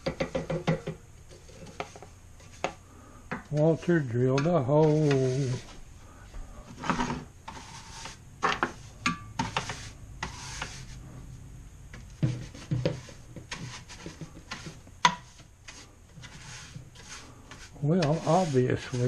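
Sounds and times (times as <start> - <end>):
brush sweeping metal table: 3.5 - 5.8, 6.6 - 11.2, 12.2 - 19.0.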